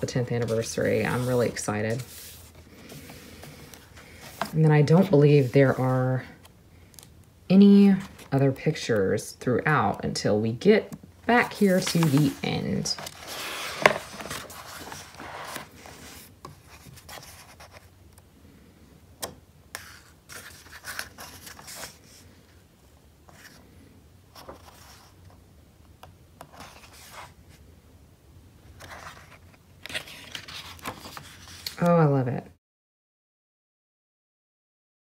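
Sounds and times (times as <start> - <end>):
paper pages rustling: 0.4 - 7.1, 11.4 - 17.9, 19.7 - 22.6, 24.3 - 25.4, 28.7 - 31.9.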